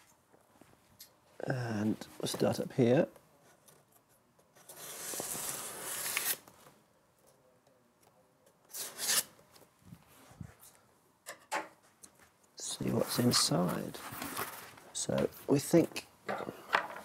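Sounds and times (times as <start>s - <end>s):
scissor blade scraping packing tape: 4.6s - 6.4s, 8.7s - 9.4s.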